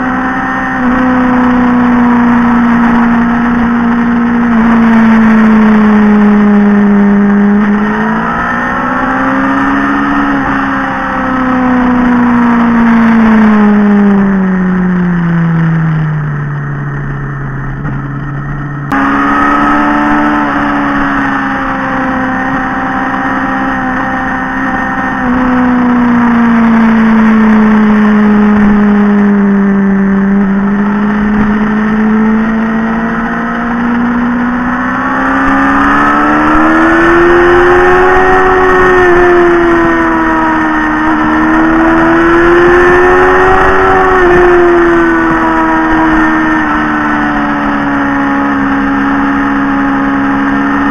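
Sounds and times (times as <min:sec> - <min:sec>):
motorcycle engine revving: 0:00.0 - 0:50.9.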